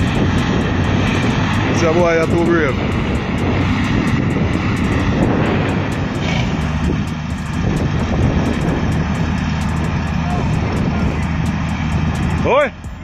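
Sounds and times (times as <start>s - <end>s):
diesel truck engine droning: 0.0s - 13.0s.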